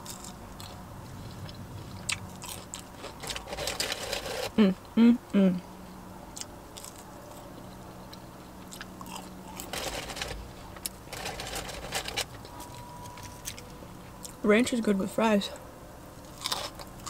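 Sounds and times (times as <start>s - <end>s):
person chewing crunchy food: 0.0s - 4.6s, 6.4s - 14.4s, 16.2s - 17.0s
faint low hum: 0.0s - 17.0s.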